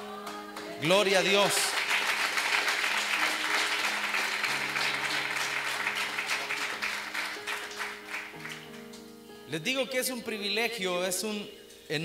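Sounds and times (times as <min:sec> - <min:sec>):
soft instrumental music: 0:00.0 - 0:12.0
crowd applauding: 0:01.1 - 0:09.0.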